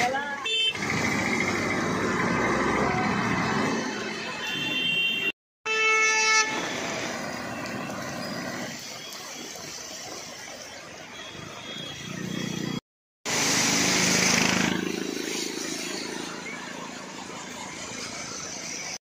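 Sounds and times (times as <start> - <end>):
traffic on a flooded street: 0.0 - 19.0
vehicles splashing through flood water: 0.0 - 19.0
vehicle horn: 4.4 - 6.8
rain: 6.6 - 12.2, 13.3 - 19.0.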